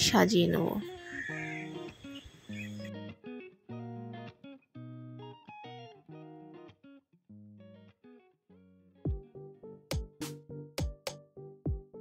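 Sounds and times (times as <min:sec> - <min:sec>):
plucked guitar notes: 0:01.1 - 0:08.3.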